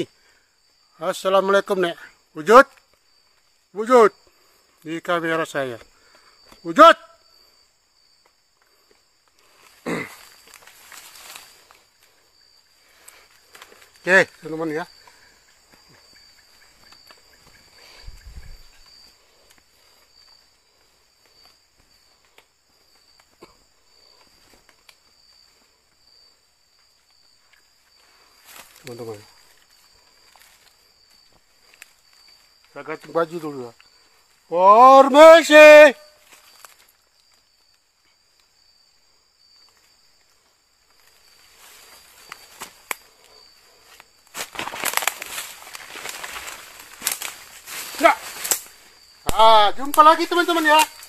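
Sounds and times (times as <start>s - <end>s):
night insects chirping: 0.0s - 51.0s
footsteps through leaves: 44.3s - 48.5s.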